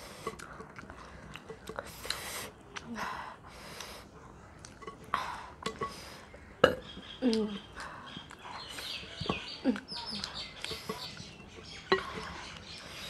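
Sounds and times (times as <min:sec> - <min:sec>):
eating with hands: 0:00.0 - 0:13.0.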